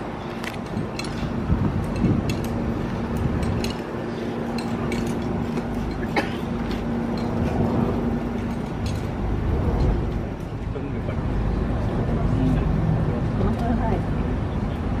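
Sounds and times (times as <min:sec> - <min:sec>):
engines idling hum: 0:00.0 - 0:15.0
low rumble: 0:07.0 - 0:14.6.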